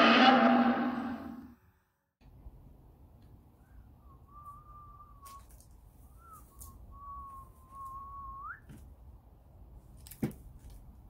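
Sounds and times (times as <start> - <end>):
person whistling a note: 6.1 - 8.7.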